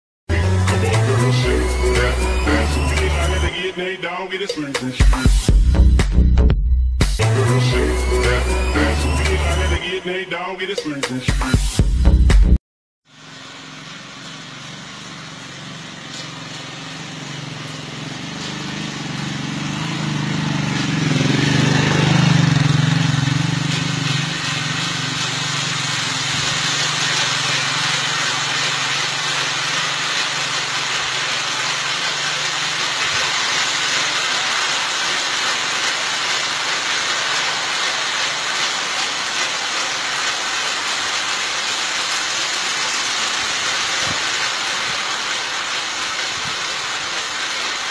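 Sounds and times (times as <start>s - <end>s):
cableway rushing rattle: 13.2s - 47.9s.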